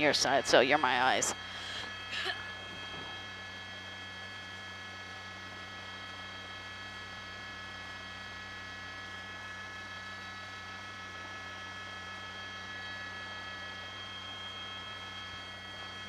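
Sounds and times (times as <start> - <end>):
high whining tones: 0.0 - 4.4
helicopter cabin hiss and hum: 0.0 - 7.6.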